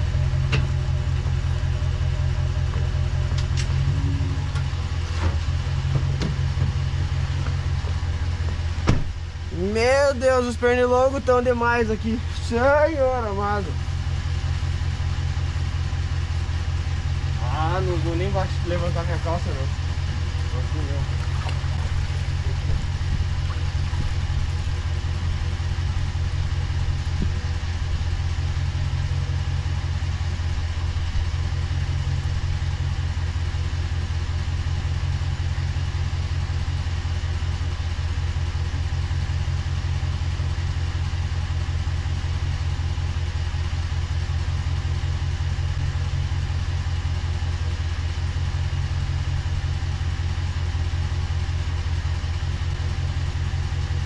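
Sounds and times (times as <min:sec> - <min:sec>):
boat motor running: 0:00.0 - 0:33.3.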